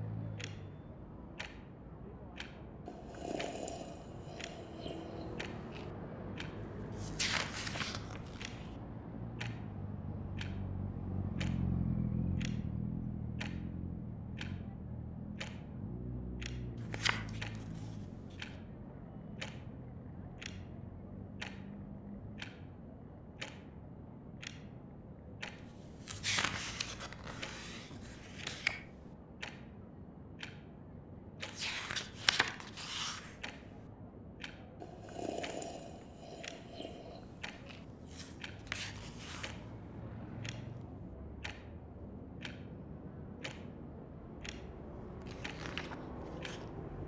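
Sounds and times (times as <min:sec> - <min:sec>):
traffic rumble: 0:00.0 - 0:23.2, 0:31.1 - 0:47.0
clock ticking: 0:00.4 - 0:01.8, 0:02.4 - 0:08.8, 0:09.4 - 0:09.6, 0:10.3 - 0:10.6, 0:12.4 - 0:12.6, 0:13.4 - 0:13.7, 0:14.3 - 0:14.7, 0:15.3 - 0:15.7, 0:16.4 - 0:19.7, 0:20.4 - 0:20.6, 0:21.3 - 0:21.7, 0:22.3 - 0:24.7, 0:25.4 - 0:33.8, 0:34.4 - 0:46.9.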